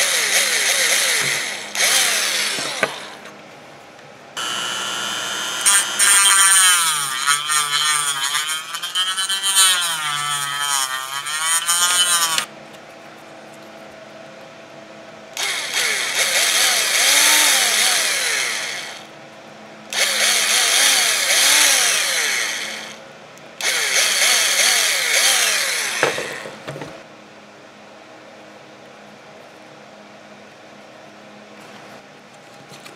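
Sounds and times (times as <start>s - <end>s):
cordless drill drilling plastic: 0.0s - 3.2s, 4.4s - 12.5s, 15.4s - 19.0s, 19.9s - 23.0s, 23.6s - 26.4s
rotary tool grinding plastic: 4.4s - 12.5s.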